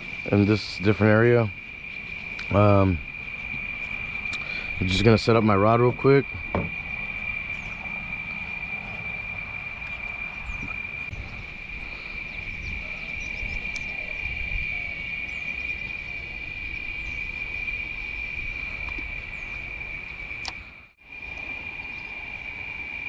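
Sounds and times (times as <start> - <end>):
insect chorus droning: 0.0 - 23.0.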